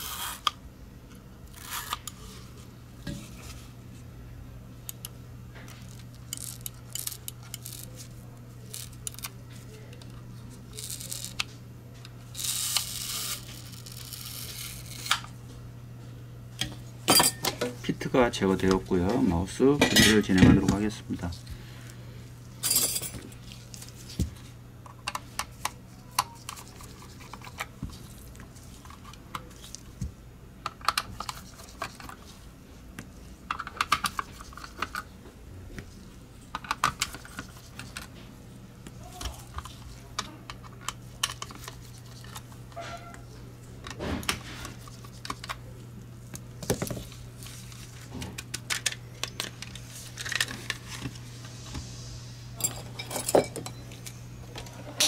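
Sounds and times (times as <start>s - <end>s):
steady low hum: 0.0s - 55.0s.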